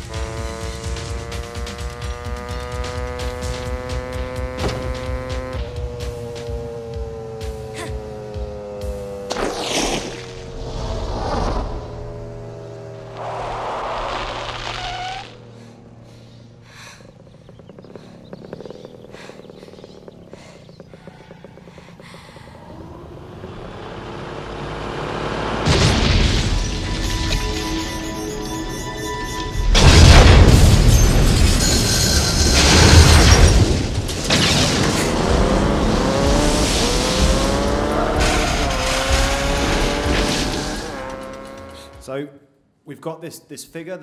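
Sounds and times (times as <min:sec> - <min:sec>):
dirt bike engine: 0:00.0 - 0:42.1
heavy crash with scraping debris: 0:25.6 - 0:35.4, 0:38.1 - 0:41.0.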